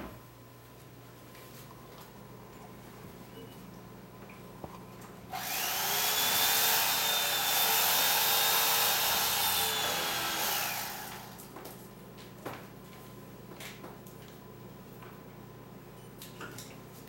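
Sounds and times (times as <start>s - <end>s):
electric motor whining: 5.4s - 11.3s.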